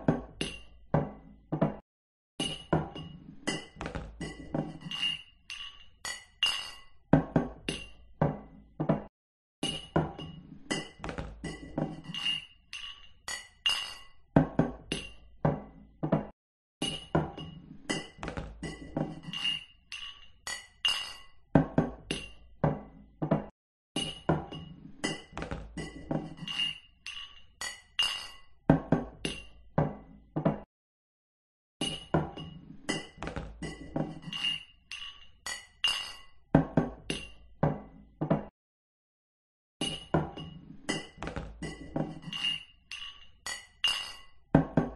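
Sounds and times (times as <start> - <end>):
glass mugs clinking: 2.4 - 6.9, 9.6 - 14.1, 16.8 - 21.3, 24.0 - 28.5, 31.8 - 36.4, 39.8 - 44.9.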